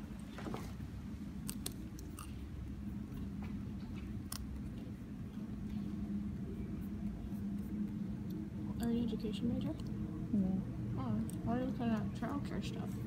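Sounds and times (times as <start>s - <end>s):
steady low hum: 0.0s - 13.0s
crunching snack eating: 1.4s - 2.5s.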